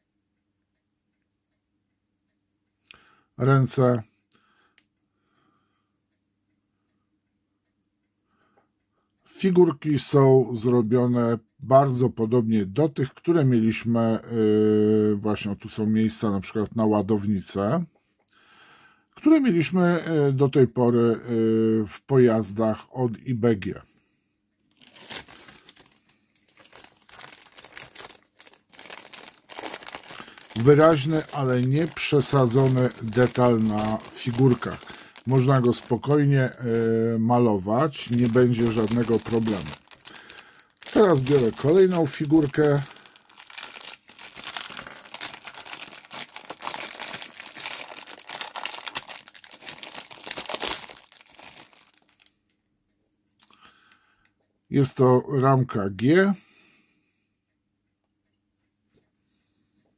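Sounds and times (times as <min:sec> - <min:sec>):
plastic bag crinkling: 0:24.7 - 0:52.4.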